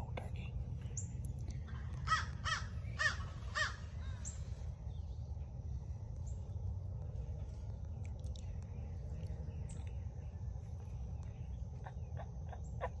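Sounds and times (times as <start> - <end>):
crow cawing: 2.1 - 3.8.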